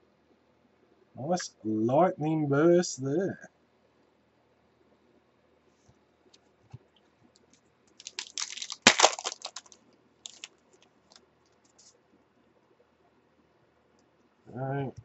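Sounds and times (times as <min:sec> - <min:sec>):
cards clicking: 0:08.0 - 0:10.5
wrapper crinkling and tearing: 0:08.0 - 0:11.2.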